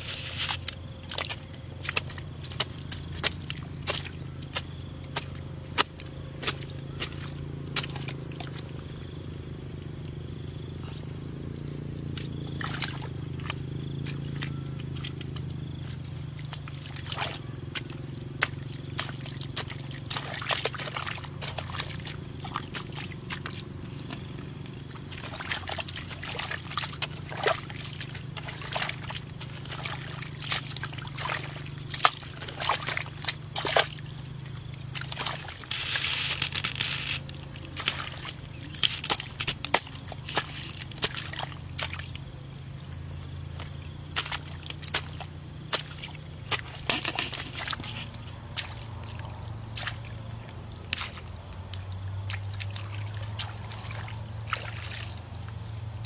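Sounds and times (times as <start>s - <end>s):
hoe chopping wet mud: 0.0s - 56.0s
mud squelching and splashing: 0.0s - 56.0s
steady low hum: 0.0s - 56.0s.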